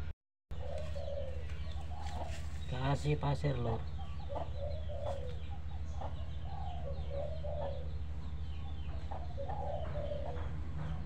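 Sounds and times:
steady low hum: 0:00.0 - 0:11.0
hen clucking: 0:00.6 - 0:08.0.

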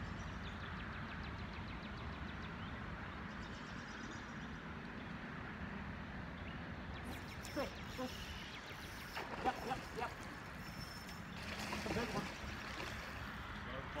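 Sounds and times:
river flowing: 0:07.1 - 0:14.0.

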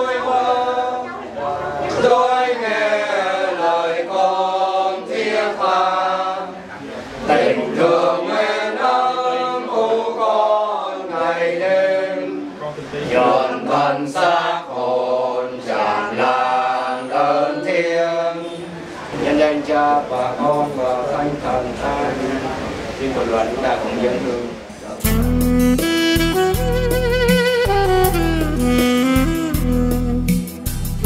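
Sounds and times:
men singing in unison: 0:01.9 - 0:06.6, 0:07.3 - 0:22.2.

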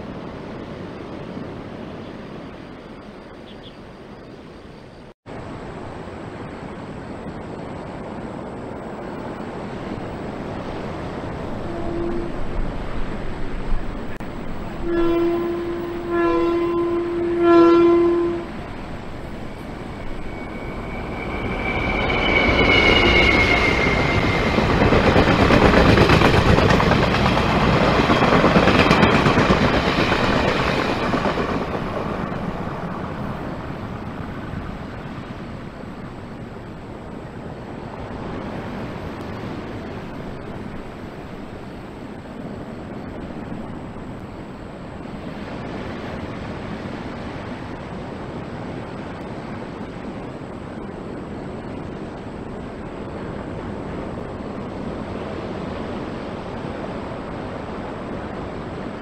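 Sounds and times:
train wheels rolling on rails: 0:05.5 - 0:59.0
train horn blasts: 0:11.5 - 0:12.7, 0:14.6 - 0:18.7, 0:20.0 - 0:24.4
high falling squeal: 0:14.4 - 0:25.4.

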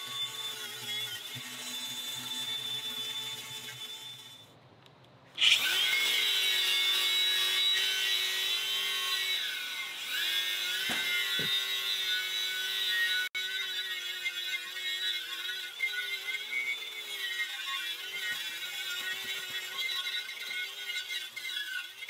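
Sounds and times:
angle grinder with wire brush: 0:00.0 - 0:04.5, 0:05.4 - 0:22.0
sharp knocks: 0:10.8 - 0:11.6.

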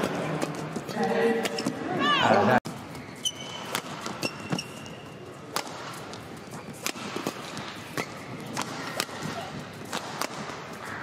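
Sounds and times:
shoe squeaking on court floor: 0:00.4 - 0:09.8
racket hitting shuttlecock: 0:03.3 - 0:04.7, 0:05.5 - 0:11.0.

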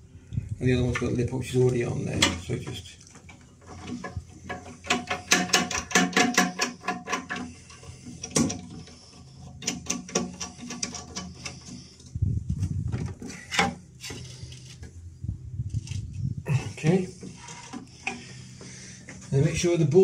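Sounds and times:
low rubbing rumble: 0:11.5 - 0:20.0.

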